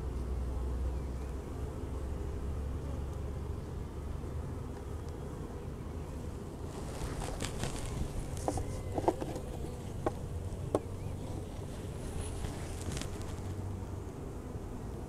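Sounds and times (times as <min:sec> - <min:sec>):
honeybees humming: 0:00.0 - 0:15.0
wooden frames knocking: 0:08.3 - 0:10.9.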